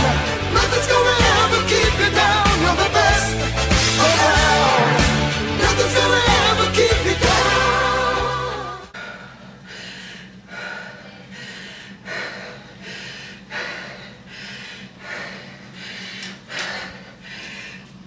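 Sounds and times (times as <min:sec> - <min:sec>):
woman breathing hard and gasping: 0:08.9 - 0:18.0.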